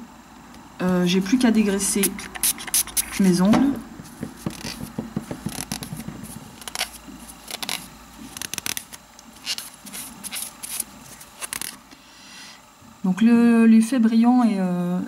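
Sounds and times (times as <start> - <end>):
pad rubbing fingernails: 4.0 - 11.8.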